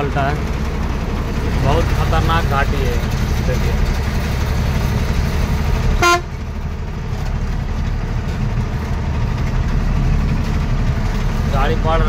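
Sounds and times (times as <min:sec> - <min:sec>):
low engine rumble: 0:00.0 - 0:12.0
vehicle horn toot: 0:06.0 - 0:06.4.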